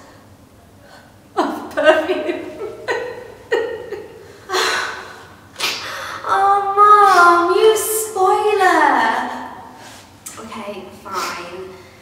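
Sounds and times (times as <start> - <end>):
women sobbing and wailing: 2.0 - 5.3.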